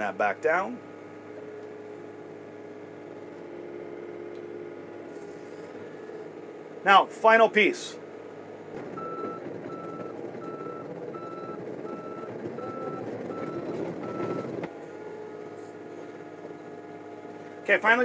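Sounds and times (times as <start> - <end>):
excavator engine running: 0.0 - 18.0
track noise: 6.8 - 18.0
excavator travel alarm beeps: 8.9 - 14.7.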